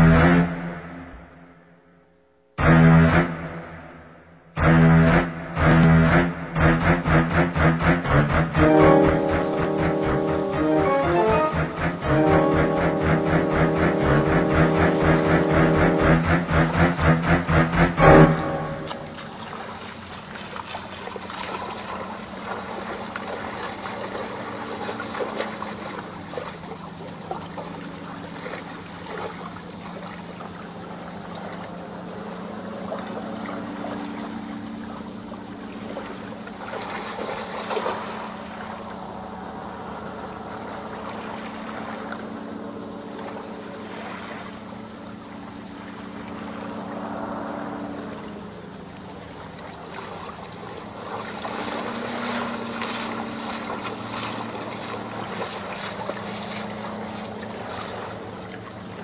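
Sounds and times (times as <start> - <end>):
low engine hum: 2.6 - 59.0
water splash: 13.3 - 29.4, 49.6 - 58.8
small waves lapping: 18.2 - 59.0.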